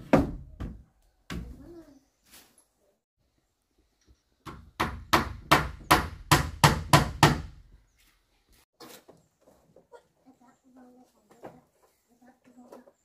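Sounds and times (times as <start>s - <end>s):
hammer striking wood: 0.0s - 1.5s, 4.4s - 7.6s.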